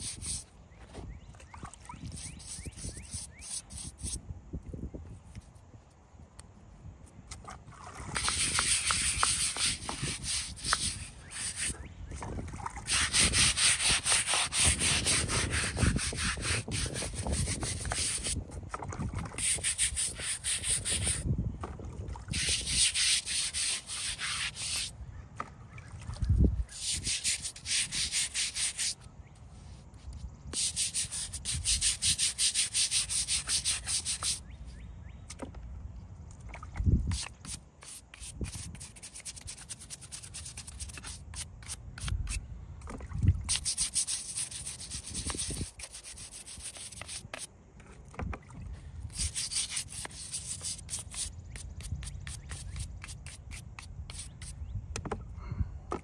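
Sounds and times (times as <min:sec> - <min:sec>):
bristle brush scrubbing wet stone: 0:00.0 - 0:00.5, 0:02.0 - 0:04.2, 0:08.2 - 0:11.9, 0:12.8 - 0:18.4, 0:19.3 - 0:21.2, 0:22.3 - 0:24.9, 0:26.7 - 0:29.0, 0:30.6 - 0:34.4, 0:37.1 - 0:42.4, 0:43.5 - 0:47.5, 0:49.1 - 0:54.6.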